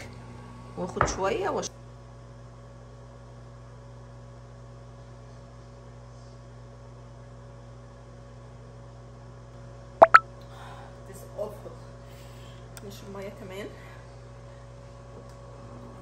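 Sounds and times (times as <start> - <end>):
short loud sharp sounds: 10.0 - 10.2.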